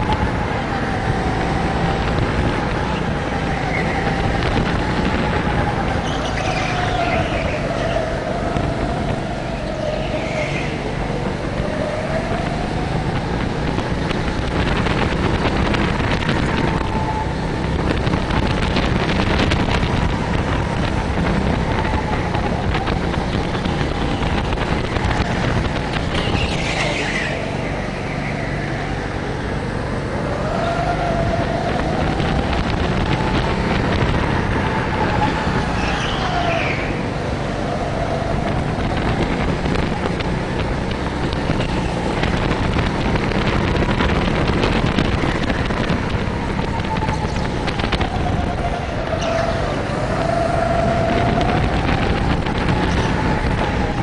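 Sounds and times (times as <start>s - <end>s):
tyre squeals: 34.9s - 37.1s.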